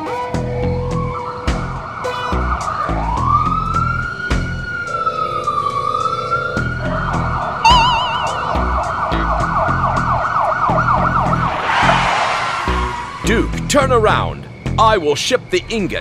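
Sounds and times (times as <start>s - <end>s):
background music with beat: 0.0s - 5.0s, 6.6s - 11.3s
ambulance siren wailing: 0.0s - 13.6s.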